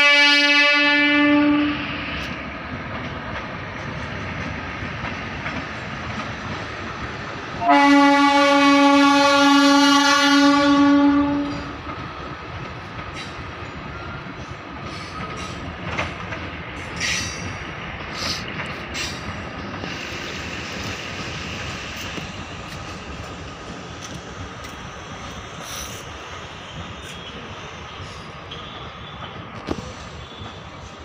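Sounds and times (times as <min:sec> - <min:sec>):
train horn blast: 0:00.0 - 0:02.2, 0:07.6 - 0:11.8
train rumble: 0:00.0 - 0:31.0
wheels clanking over rail joints: 0:02.7 - 0:07.3, 0:11.1 - 0:20.0.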